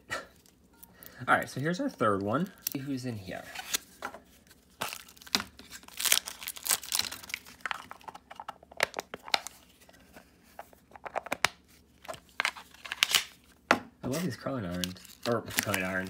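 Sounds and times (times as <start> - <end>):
wrapper tearing and crinkling: 4.7 - 8.2, 12.3 - 13.4, 14.1 - 16.0.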